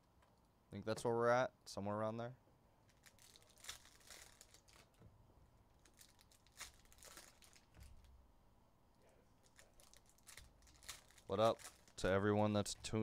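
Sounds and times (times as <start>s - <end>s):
foil wrapper crinkling: 2.9s - 5.0s, 5.8s - 8.1s, 9.4s - 12.1s.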